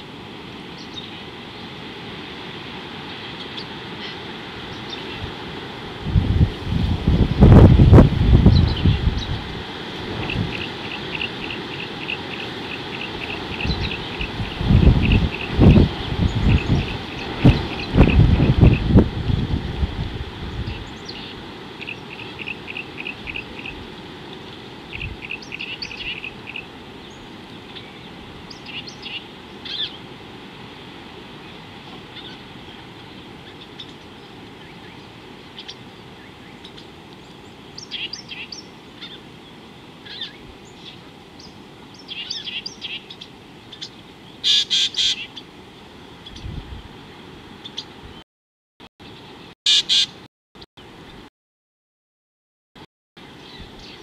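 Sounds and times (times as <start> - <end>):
birds chirping and calling: 8.4 - 9.4, 10.1 - 19.0, 20.5 - 23.8, 24.9 - 30.0, 32.1 - 45.5, 47.6 - 47.9, 49.1 - 50.2.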